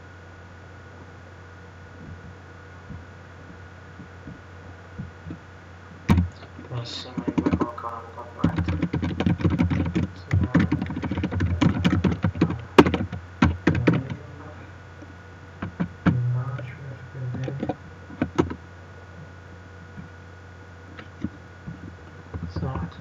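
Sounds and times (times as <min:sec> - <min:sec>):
typing on computer keyboard: 0:07.1 - 0:07.7, 0:08.4 - 0:14.2.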